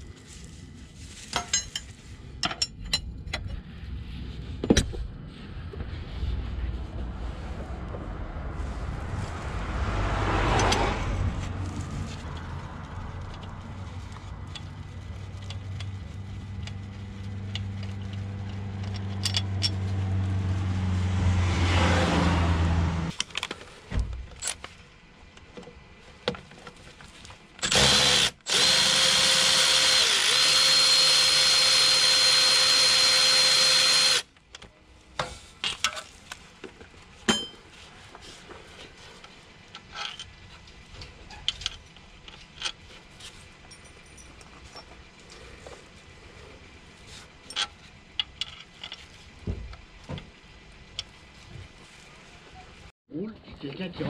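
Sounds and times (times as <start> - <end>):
power drill whirring: 27.6 - 34.3.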